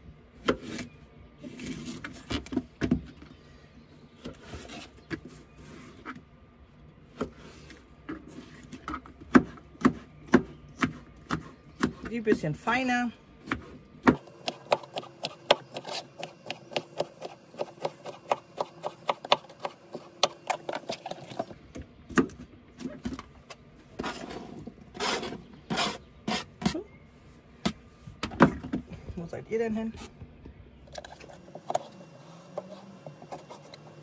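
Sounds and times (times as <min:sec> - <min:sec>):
knife chopping on cutting board: 0:13.4 - 0:20.8
scrapes and knocks on board: 0:24.0 - 0:26.8.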